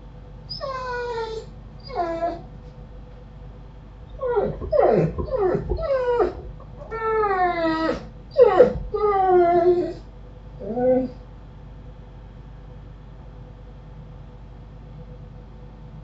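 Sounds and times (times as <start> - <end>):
animal whining: 0.5 - 2.5, 4.1 - 11.2.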